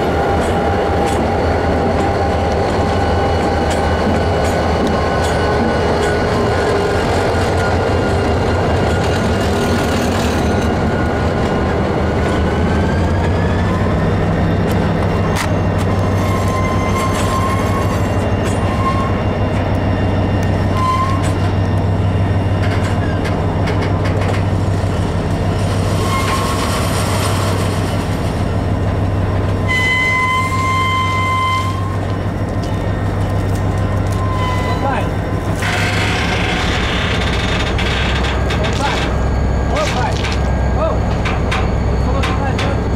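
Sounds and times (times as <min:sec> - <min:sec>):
freight train rumbling past: 0:00.0 - 0:42.9
high-pitched wheel squeals: 0:16.0 - 0:19.5, 0:20.7 - 0:21.4, 0:26.0 - 0:26.7, 0:29.6 - 0:32.1, 0:34.0 - 0:40.1
wheels clicking over rail joints: 0:22.6 - 0:24.6, 0:32.0 - 0:42.9.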